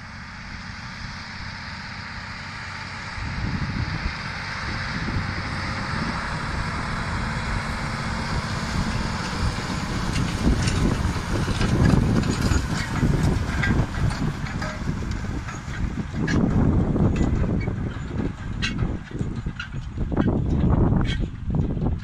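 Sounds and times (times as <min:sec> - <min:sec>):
tractor diesel engine under load: 0:00.0 - 0:22.0
harrow clicks and knocks: 0:10.1 - 0:22.0.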